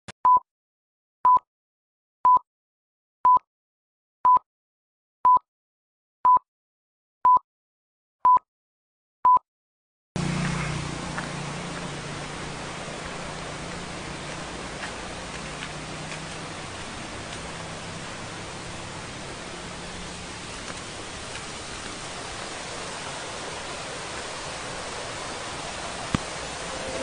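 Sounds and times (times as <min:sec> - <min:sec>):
outdoor rushing hiss: 0:10.2 - 0:27.0
low hum: 0:26.4 - 0:27.0
countdown beeps: 0:26.7 - 0:27.0.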